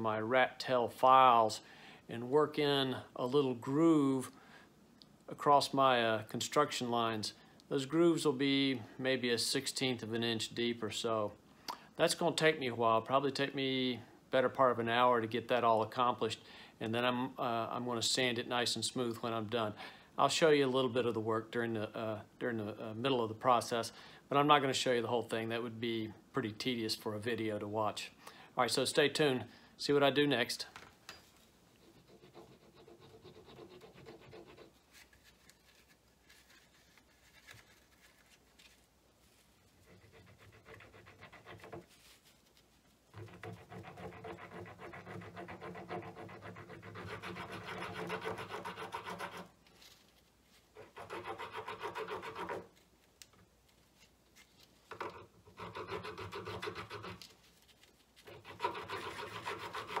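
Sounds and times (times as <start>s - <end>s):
file rasping on plastic: 31.8s - 34.9s, 39.8s - 41.9s, 43.1s - 49.6s, 50.8s - 52.8s, 55.0s - 57.3s, 58.2s - 60.0s.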